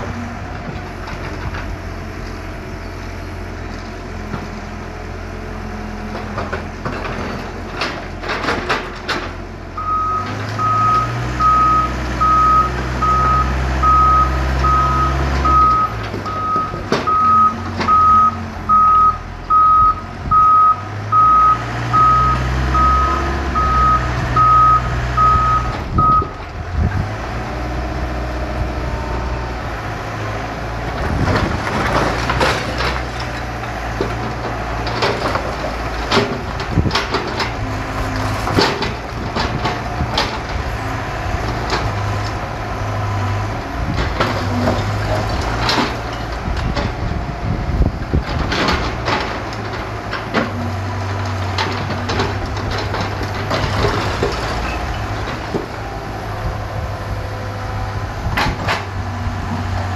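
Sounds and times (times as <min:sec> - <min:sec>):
excavator diesel engine: 0:00.0 - 0:59.9
bricks and concrete clattering: 0:31.1 - 0:37.6, 0:51.5 - 0:55.8.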